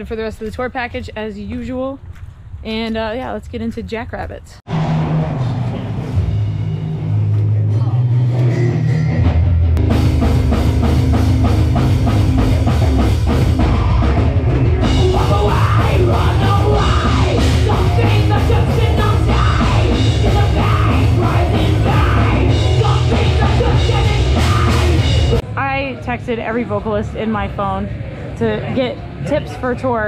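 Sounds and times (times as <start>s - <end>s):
dense drumming: 4.7s - 25.4s
heavy metal band playing live: 4.7s - 25.4s.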